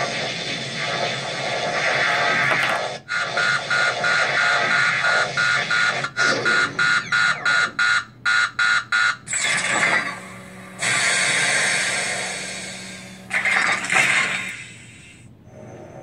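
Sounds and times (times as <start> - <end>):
electronic warning beeps: 3.3 - 11.0.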